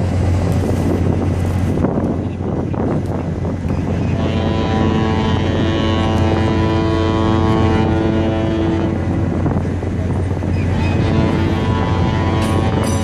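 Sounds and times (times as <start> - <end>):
ship horn blast: 3.9 - 13.0.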